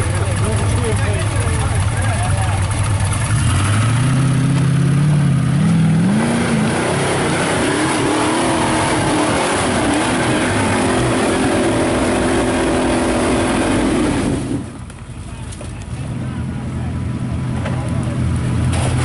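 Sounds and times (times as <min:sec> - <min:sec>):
buggy engine revving: 0:00.0 - 0:19.0.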